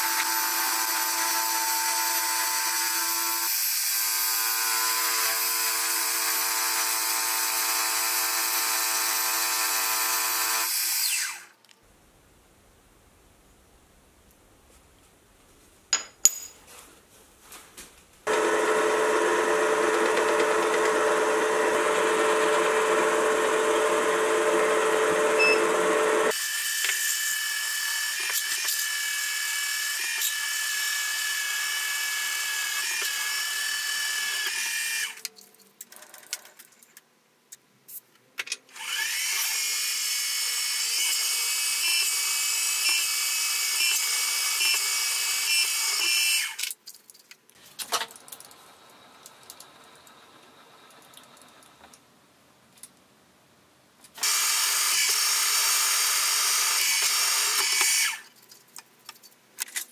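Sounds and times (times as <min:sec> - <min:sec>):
milling machine drilling metal: 0:54.2 - 0:58.2.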